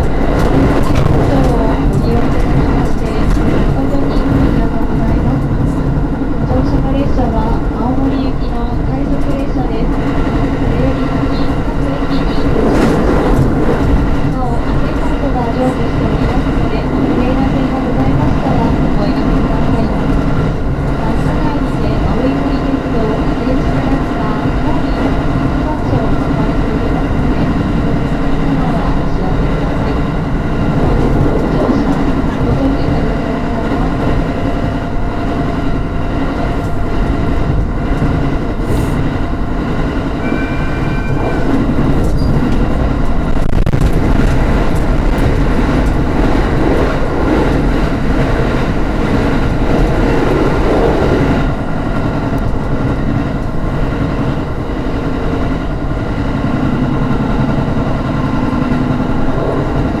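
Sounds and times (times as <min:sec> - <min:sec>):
train wheels rumbling on rail: 0:00.0 - 1:00.0
brief steady tone: 0:40.2 - 0:42.4.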